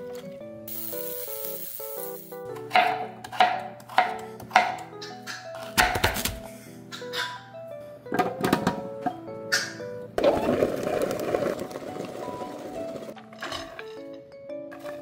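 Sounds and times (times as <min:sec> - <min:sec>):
light background music: 0:00.0 - 0:15.0
knife chopping on cutting board: 0:02.7 - 0:04.9.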